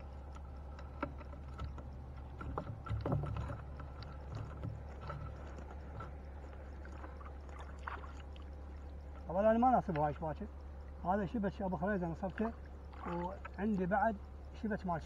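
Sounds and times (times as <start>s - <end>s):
small knocks and clicks: 0.0s - 10.4s
water splashing and dripping: 1.2s - 11.0s, 12.0s - 14.0s.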